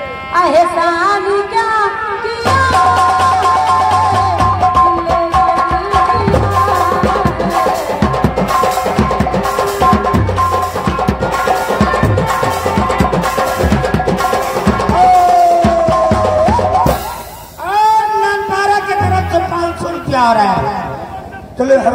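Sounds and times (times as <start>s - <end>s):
instrumental dance melody: 2.4s - 17.8s, 18.6s - 20.7s
fast drum strokes: 2.4s - 18.0s.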